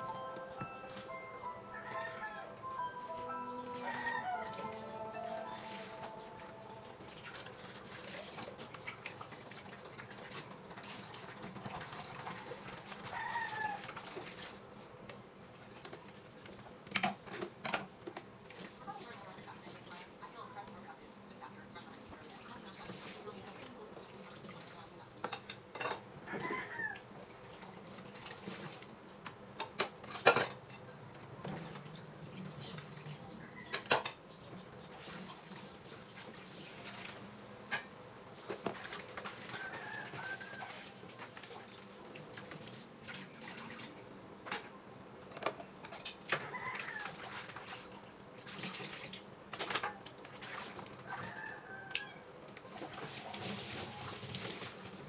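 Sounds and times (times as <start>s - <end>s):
dishes clattering at a sink: 25.2s - 26.9s, 29.6s - 31.9s, 33.6s - 34.3s, 37.7s - 41.7s, 48.4s - 51.4s.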